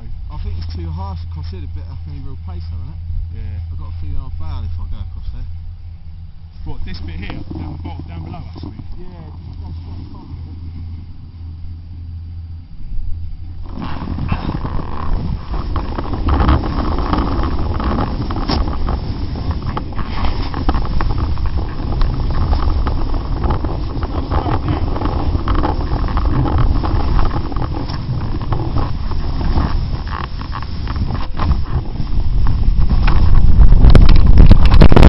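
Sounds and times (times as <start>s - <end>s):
low steady hum: 0.0s - 35.0s
wind on microphone: 0.0s - 35.0s
snowboard scraping over snow: 6.6s - 10.6s, 13.6s - 35.0s.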